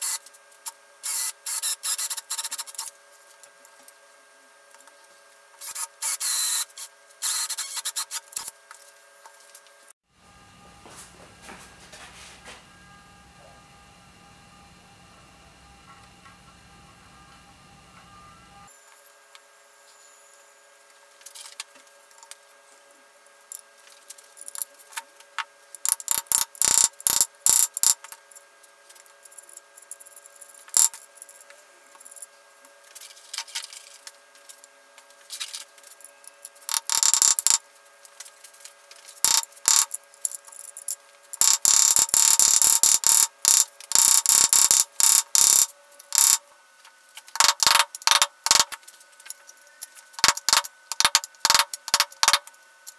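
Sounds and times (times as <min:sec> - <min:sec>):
faint steady hum: 0:00.0 - 0:52.9.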